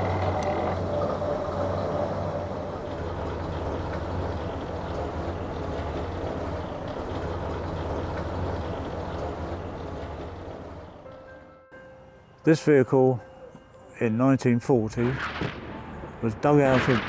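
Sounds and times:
fire engine idling rumble: 0.0s - 11.2s.

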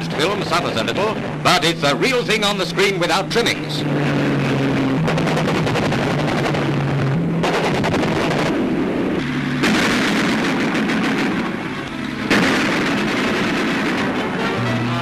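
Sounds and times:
automatic cannon fire: 5.0s - 8.6s, 9.5s - 14.7s.

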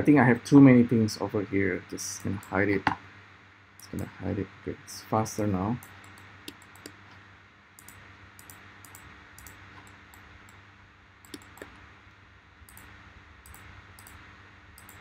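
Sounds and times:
faint steady hum: 0.0s - 15.0s
computer mouse clicks: 5.8s - 7.0s, 7.8s - 10.6s, 11.2s - 11.8s, 12.7s - 14.2s, 14.8s - 15.0s.

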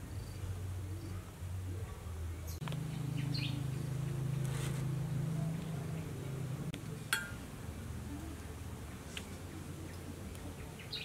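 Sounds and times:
low buzzing hum: 0.0s - 10.8s
bird chirps: 2.4s - 4.0s, 8.9s - 11.0s.

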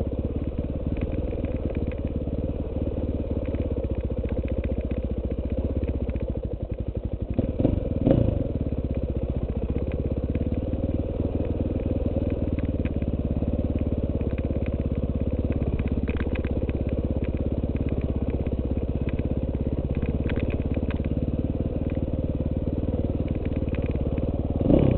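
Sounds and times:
dirt bike engine revving: 24.5s - 24.9s.

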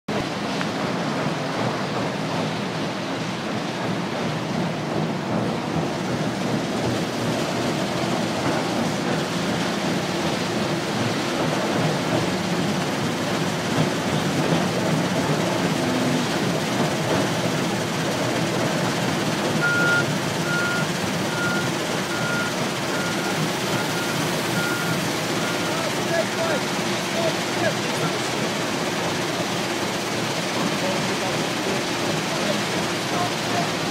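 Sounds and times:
diesel engine under load: 0.1s - 33.9s
reversing alarm beeping: 19.6s - 25.9s.

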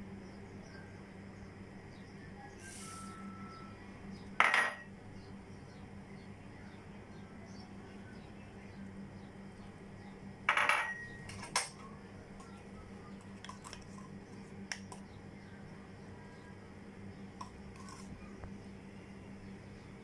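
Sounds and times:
steady low hum: 0.0s - 20.0s
utensils clattering against glass bowl: 10.5s - 11.8s.

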